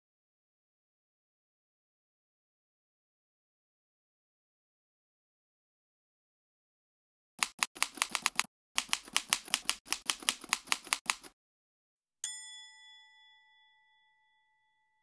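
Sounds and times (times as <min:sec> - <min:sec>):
typewriter keystrokes clacking: 0:07.4 - 0:11.3.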